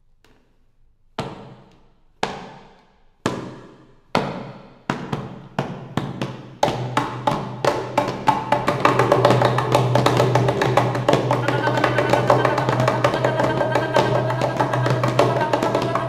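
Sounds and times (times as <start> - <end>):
ringing percussive strikes: 8.5 - 16.0.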